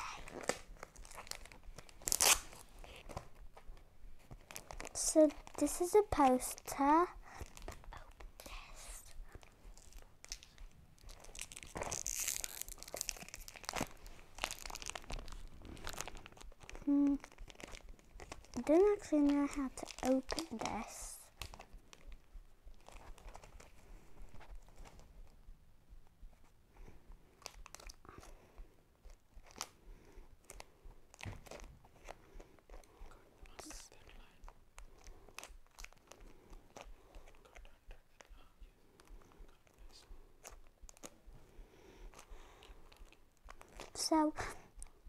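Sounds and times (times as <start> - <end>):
packaging crinkling and tearing: 0.0 - 3.6, 4.2 - 22.2, 22.8 - 23.8, 27.4 - 28.3, 29.1 - 29.8, 30.4 - 32.9, 33.5 - 37.6, 39.9 - 41.2, 42.1 - 44.9.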